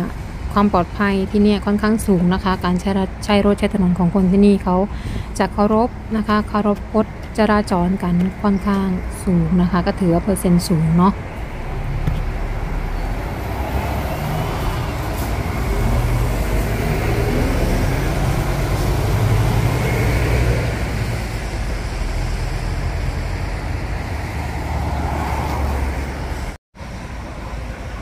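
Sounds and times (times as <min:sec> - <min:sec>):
traffic engine and road rumble: 0:00.0 - 0:28.0.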